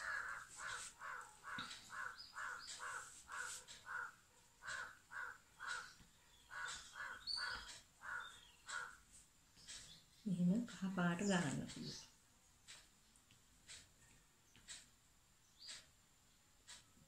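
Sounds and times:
crow cawing: 0.0 - 9.1.

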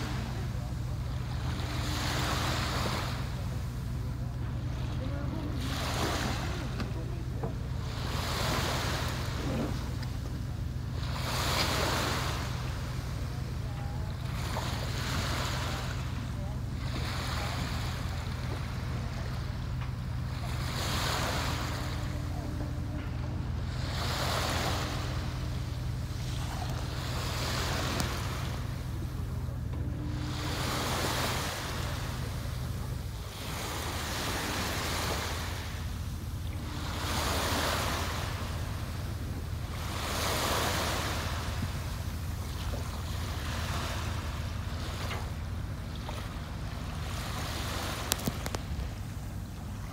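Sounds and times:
boat engine humming: 0.0 - 49.9
rushing water: 0.0 - 49.9
wind: 0.0 - 49.9.

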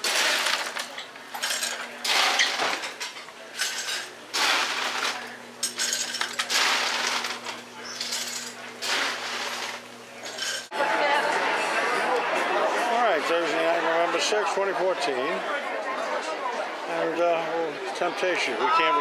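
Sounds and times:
dishes and cutlery clattering: 0.0 - 10.7
steady low hum: 3.4 - 10.7.

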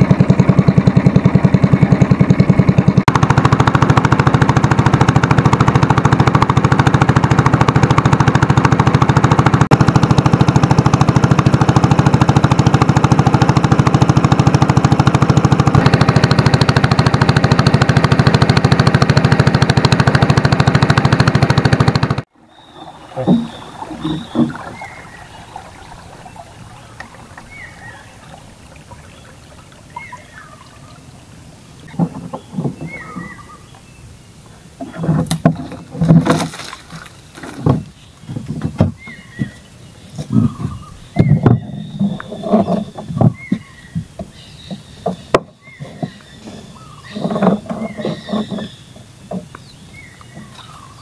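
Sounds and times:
soft wash of water: 22.3 - 33.4
bird calling: 22.4 - 35.8, 36.6 - 51.0
knocks and splashes against hull: 22.7 - 31.1, 31.8 - 33.4, 34.8 - 39.6, 40.2 - 46.2
branches knocking and rustling: 34.9 - 40.6.

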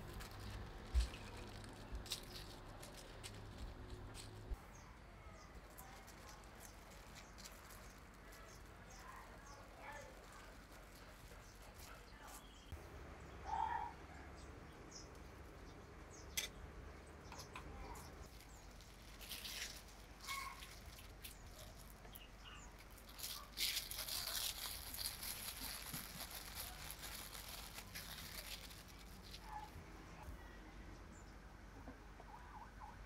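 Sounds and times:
plastic wrap crinkling: 0.0 - 4.6, 5.6 - 12.4, 18.2 - 29.8.

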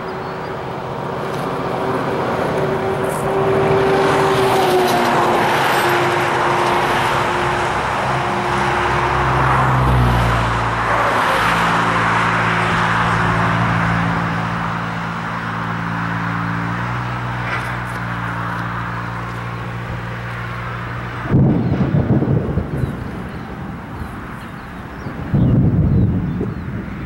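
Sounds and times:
low engine hum: 0.0 - 27.0
tyre hiss of passing traffic: 0.0 - 27.0
wind buffeting microphone: 16.3 - 27.0.

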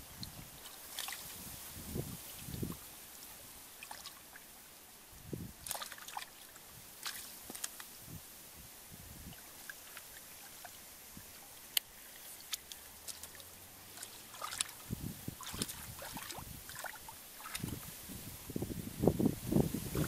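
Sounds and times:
light rustling of plants: 0.0 - 4.6, 5.2 - 20.0
squelches in mud: 5.6 - 8.0, 9.3 - 17.9.

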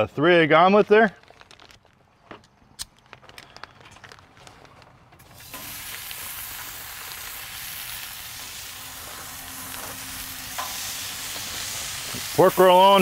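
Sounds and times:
food sizzling on a griddle: 5.3 - 13.0.

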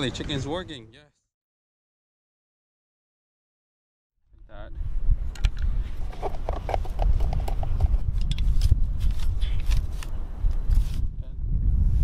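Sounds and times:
wind buffeting microphone: 4.3 - 12.0.

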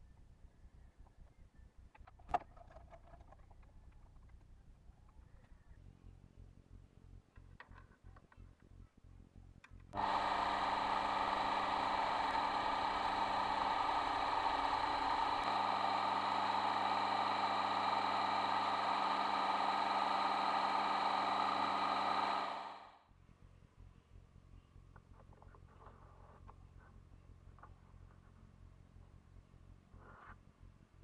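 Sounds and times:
lathe motor and gears whining: 10.0 - 23.0.

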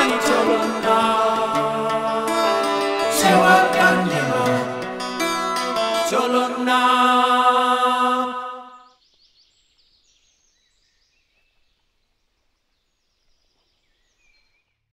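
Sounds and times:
plucked string music: 0.0 - 6.6.

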